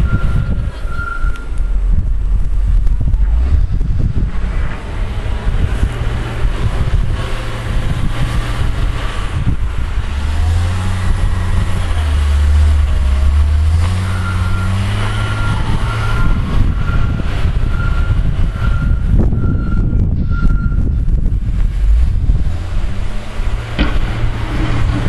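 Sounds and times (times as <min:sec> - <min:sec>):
reversing alarm beeps: 0:00.0 - 0:01.6, 0:14.0 - 0:20.8
wheel loader diesel engine: 0:00.0 - 0:25.0.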